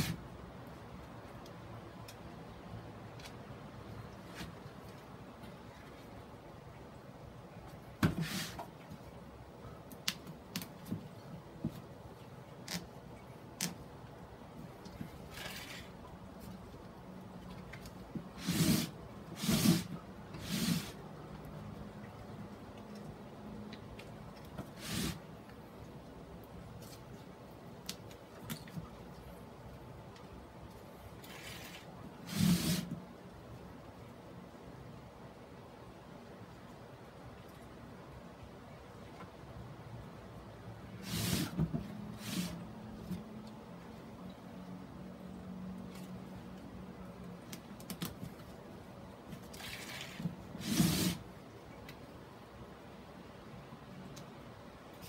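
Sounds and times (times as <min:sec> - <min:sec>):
moss rustling: 0:15.1 - 0:16.6
hissing rustles of fishing line: 0:24.7 - 0:25.3.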